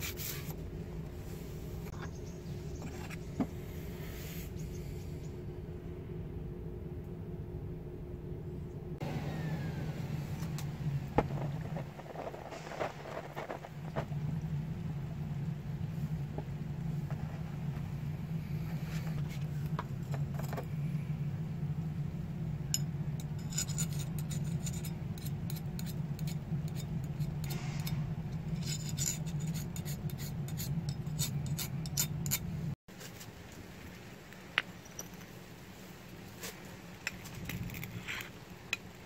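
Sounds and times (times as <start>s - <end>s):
steady low hum: 0.0s - 39.0s
file scraping knife blade: 23.2s - 32.5s.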